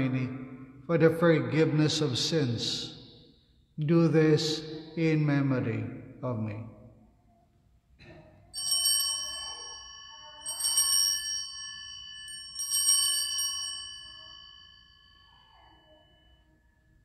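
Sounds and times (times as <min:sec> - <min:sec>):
altar bell ringing: 0:08.5 - 0:17.0.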